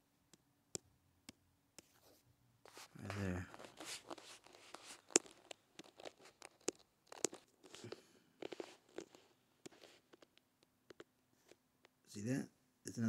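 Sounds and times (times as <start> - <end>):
fingers tapping touchscreen: 0.3 - 11.1
soft rustles of handling: 1.8 - 12.1.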